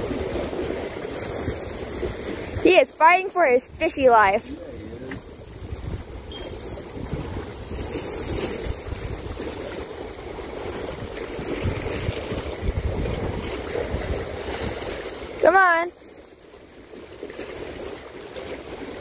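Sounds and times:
wind buffeting microphone: 0.0 - 15.5
sea water washing against rocks: 0.0 - 19.0.

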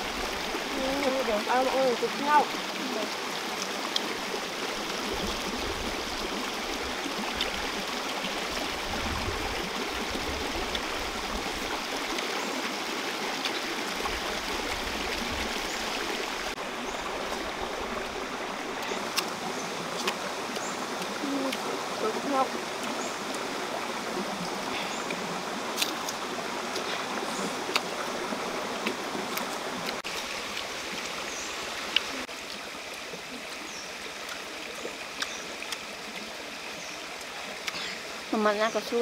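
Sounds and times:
stream running over stones: 0.0 - 39.0.

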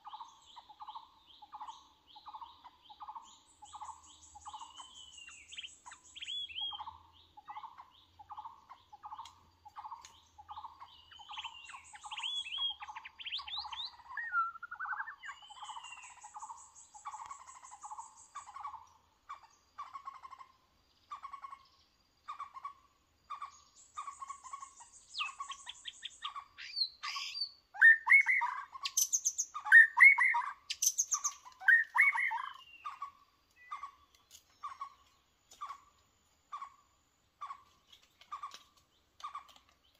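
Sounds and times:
bird song phrases: 0.0 - 39.9
bird call notes: 25.2 - 33.0.

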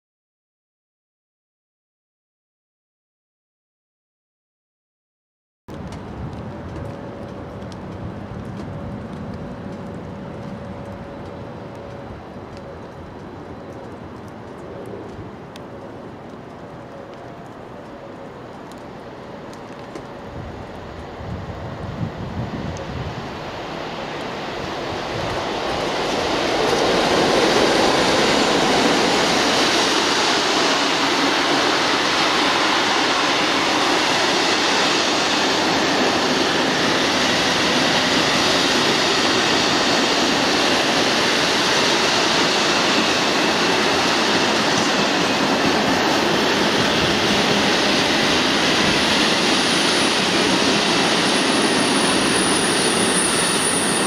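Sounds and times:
freight wagon wheels on rails: 5.7 - 21.3
diesel locomotive engine: 5.7 - 54.0.

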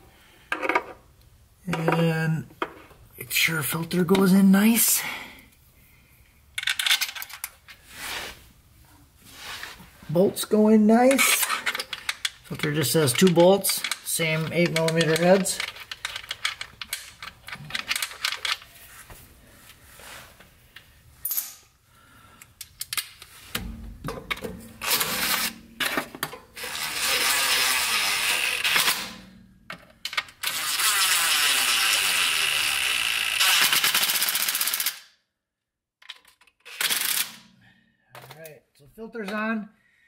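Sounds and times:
clicks of tools being handled: 11.1 - 18.7.

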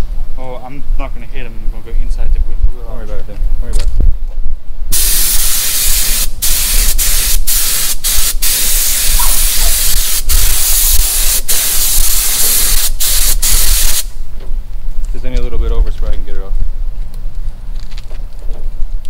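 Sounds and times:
spray gun hissing: 4.9 - 14.2.

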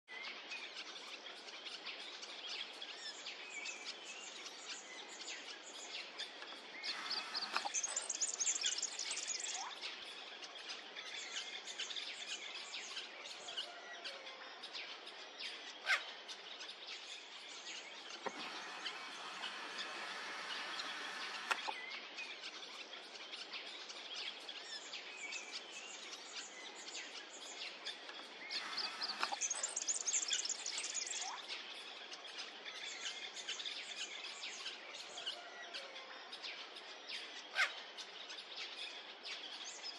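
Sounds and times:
small birds chirping: 0.1 - 39.9
sharp click: 18.1 - 21.8, 28.7 - 29.6.

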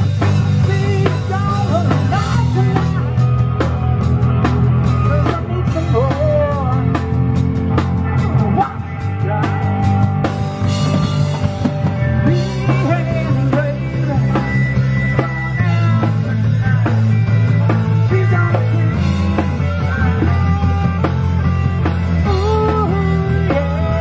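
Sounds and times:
drum kit: 0.0 - 24.0
live rock band: 0.0 - 24.0
sustained bass notes: 0.0 - 24.0.

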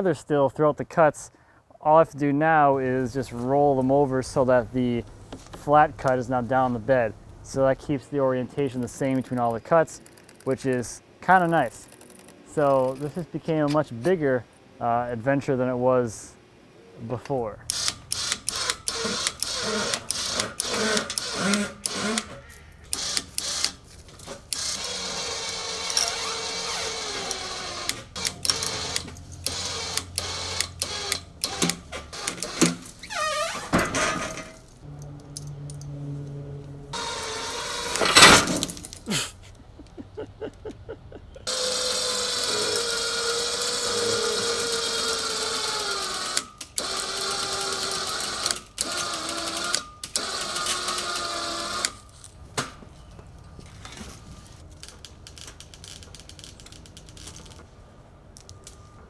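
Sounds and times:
winch motor whining: 17.8 - 33.7, 35.5 - 38.6, 41.4 - 52.0.

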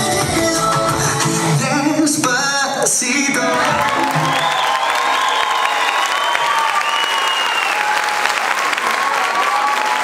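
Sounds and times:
salsa music: 0.0 - 4.8
audience applauding: 3.4 - 10.0
audience cheering: 3.5 - 10.0.

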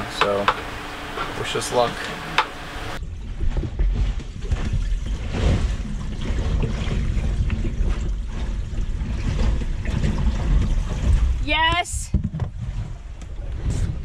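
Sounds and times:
seawater rumble against hull: 0.0 - 14.0.

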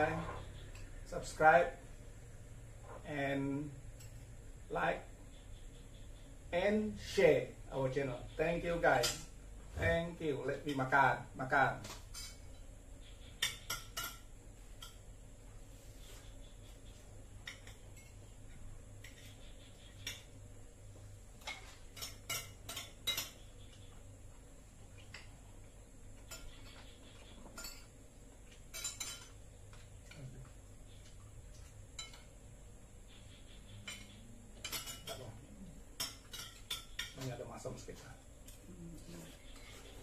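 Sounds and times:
cutlery clinking against dishes: 12.1 - 12.7, 13.4 - 15.0, 21.4 - 23.8, 26.2 - 30.3, 31.5 - 32.4, 33.8 - 37.4.

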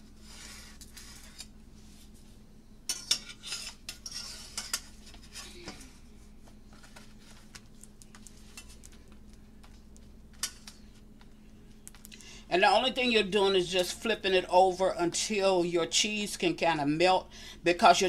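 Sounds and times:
metal spatula scraping skillet: 2.9 - 5.8.

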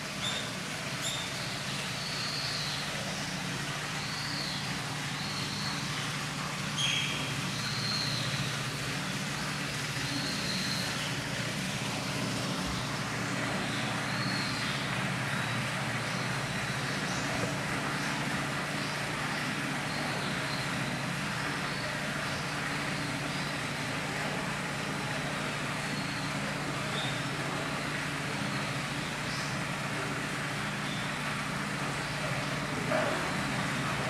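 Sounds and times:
otter high-pitched calls: 6.8 - 8.7.

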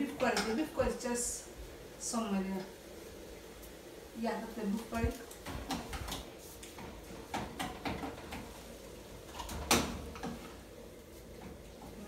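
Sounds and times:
utensils knocking and clicking: 5.4 - 8.5.

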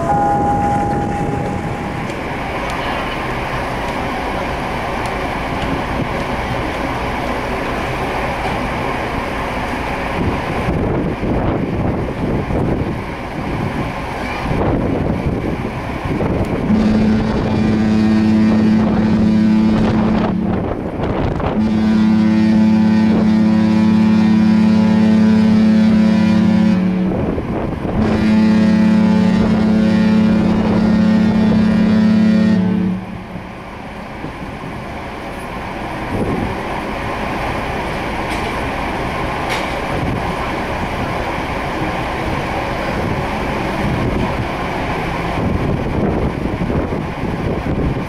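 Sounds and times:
wind on microphone: 0.0 - 2.3, 10.2 - 23.4, 26.5 - 31.9, 42.9 - 48.0
ship's horn blasts: 0.0 - 3.3, 16.5 - 33.7.

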